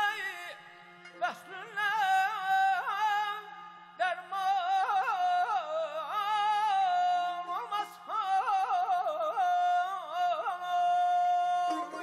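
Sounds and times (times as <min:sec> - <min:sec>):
man singing melismatic passage: 0:04.0 - 0:12.0.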